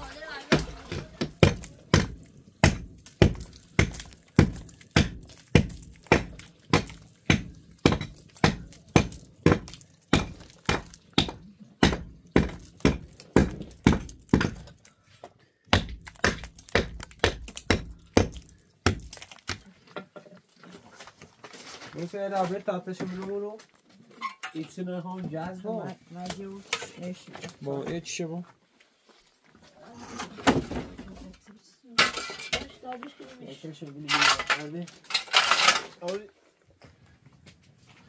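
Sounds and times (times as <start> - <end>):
hammer knocking on concrete block: 0.5 - 14.7, 15.7 - 19.6.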